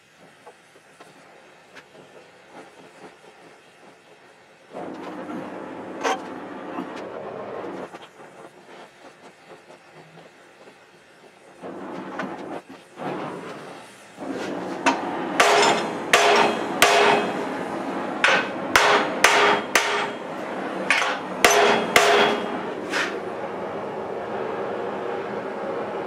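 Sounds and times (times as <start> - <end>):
gas torch hissing: 0.0 - 24.0
hammer striking hot metal: 14.8 - 17.6, 18.2 - 23.1.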